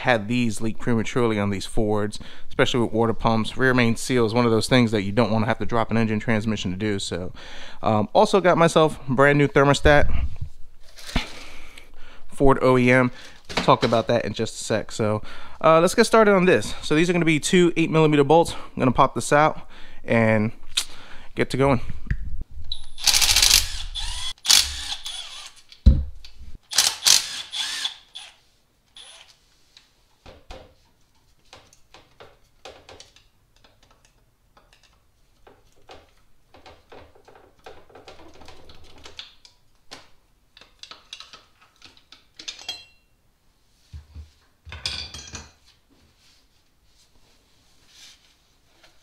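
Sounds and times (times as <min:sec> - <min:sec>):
cordless driver spinning bolts: 0:23.0 - 0:25.6, 0:26.7 - 0:28.3
tools and bolts clinking: 0:40.6 - 0:43.1.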